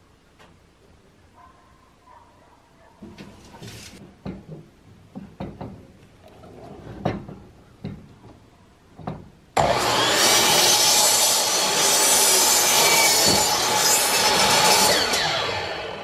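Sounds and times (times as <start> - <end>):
electric miter saw running: 9.6 - 16.0.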